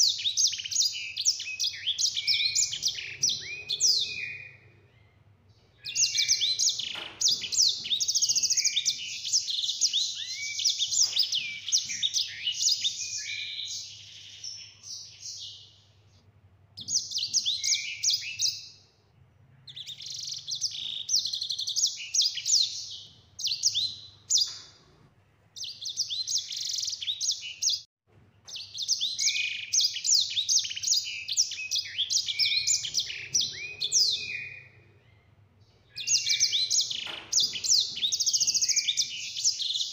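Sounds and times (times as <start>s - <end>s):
finch singing high trills: 0.0s - 5.2s, 5.8s - 15.7s, 28.5s - 35.3s, 35.9s - 39.9s.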